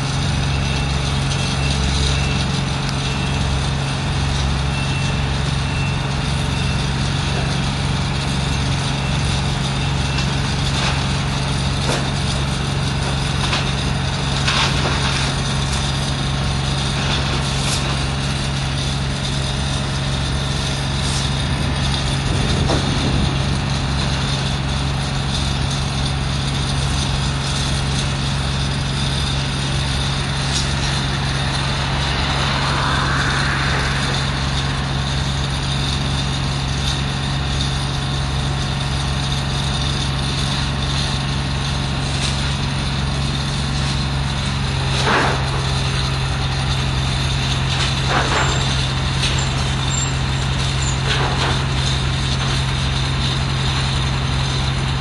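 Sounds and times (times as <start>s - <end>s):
diesel engine running steadily: 0.0s - 55.0s.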